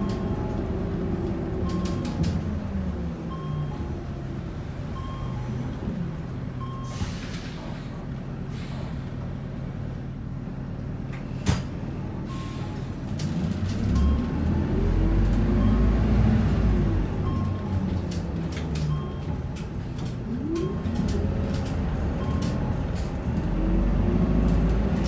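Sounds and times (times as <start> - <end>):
bus diesel engine: 0.0 - 25.0
air brake hiss: 6.9 - 9.1.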